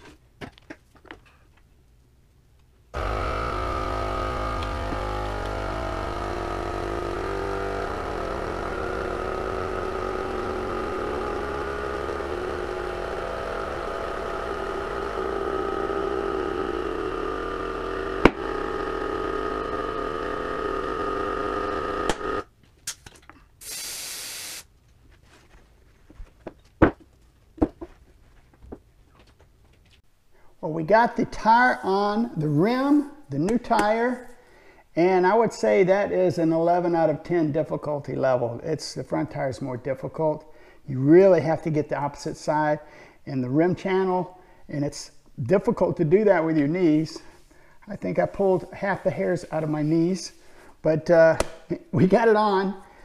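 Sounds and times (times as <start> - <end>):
motor-driven machine running: 3.0 - 22.5
short hiss: 23.6 - 24.7.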